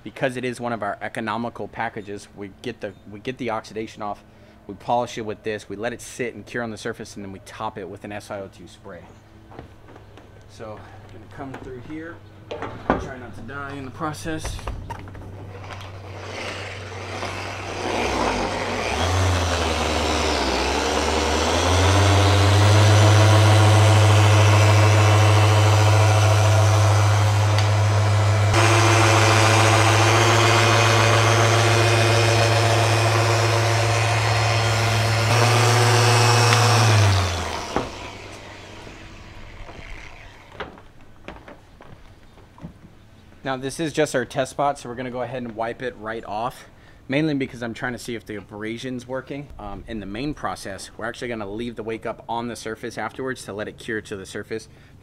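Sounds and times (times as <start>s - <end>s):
electric polishing machine running: 15.6s - 40.8s.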